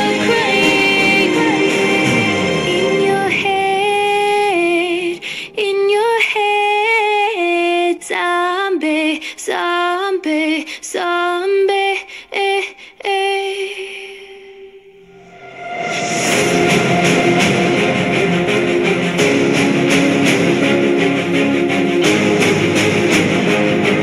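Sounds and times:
woman singing slow melody: 0:00.0 - 0:15.0.

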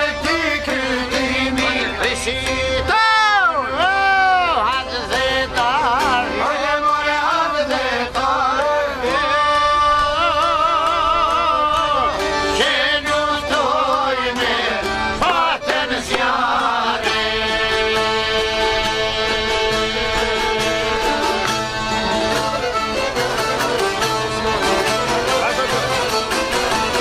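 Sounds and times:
accordion: 0:00.0 - 0:27.0
plucked lutes: 0:03.6 - 0:27.0
man singing ornamented notes: 0:08.9 - 0:15.7.

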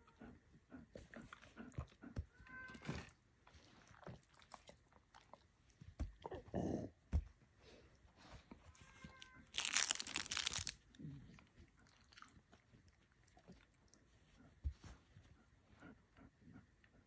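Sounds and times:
puppy chewing fur: 0:00.7 - 0:07.4, 0:09.6 - 0:16.9
dog grunting: 0:06.2 - 0:07.0.

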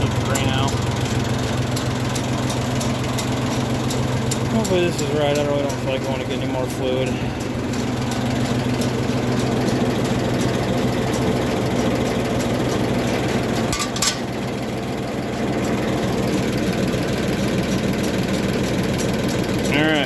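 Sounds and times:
tractor engine idling: 0:00.0 - 0:20.0
short metallic clink: 0:13.7 - 0:14.3.

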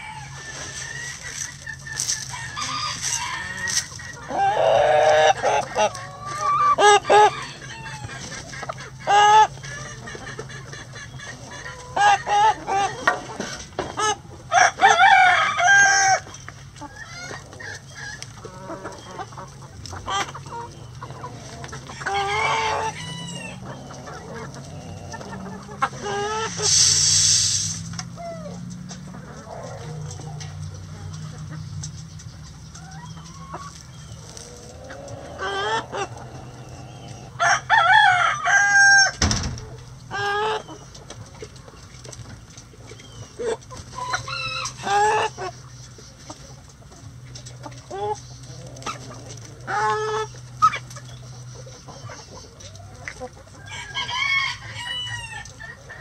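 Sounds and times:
rooster crowing: 0:00.0 - 0:01.3, 0:02.2 - 0:05.0, 0:14.5 - 0:16.2, 0:21.9 - 0:23.7, 0:37.3 - 0:39.2, 0:53.6 - 0:55.5
hens clucking and squawking: 0:00.0 - 0:56.0.

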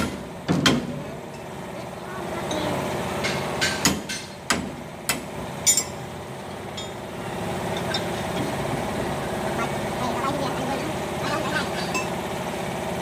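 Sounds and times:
low mechanical hum: 0:00.0 - 0:13.0
metal tools clinking on steel: 0:05.6 - 0:07.0.

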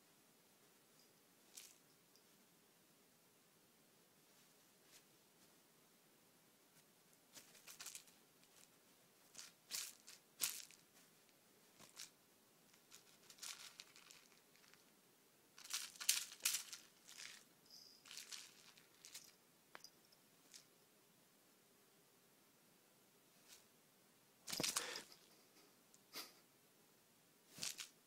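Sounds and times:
cat scratching toy and bedding: 0:07.3 - 0:10.8, 0:27.5 - 0:28.0.

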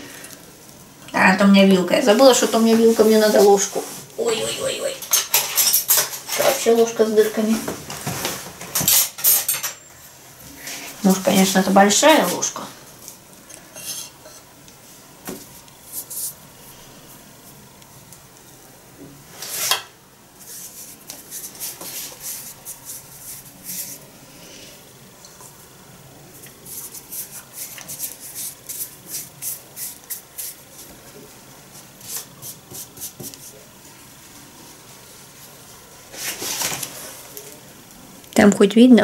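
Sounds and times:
hands rubbing sticky paste: 0:15.8 - 0:16.4, 0:20.4 - 0:24.1, 0:26.5 - 0:30.9, 0:31.9 - 0:33.6.

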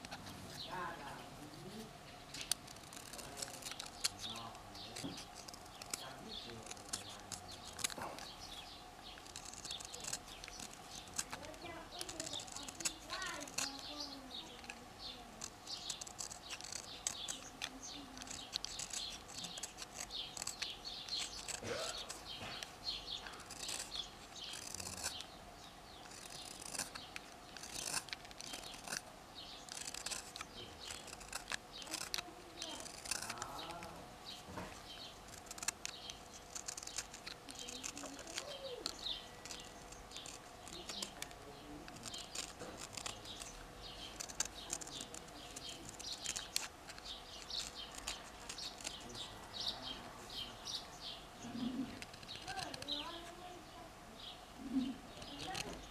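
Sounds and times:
knife scraping wood: 0:00.0 - 0:53.8, 0:54.9 - 0:55.9.

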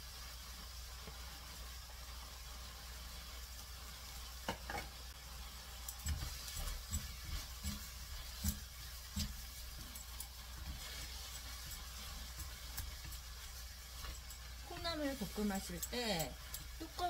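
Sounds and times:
oil sizzling: 0:00.0 - 0:17.0
spatula scraping a pan: 0:05.9 - 0:17.0
spatula knocking against a pan: 0:06.0 - 0:10.0.

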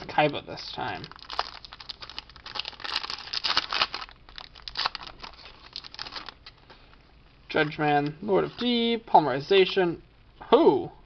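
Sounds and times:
foil wrapper crinkling and tearing: 0:00.9 - 0:06.5.

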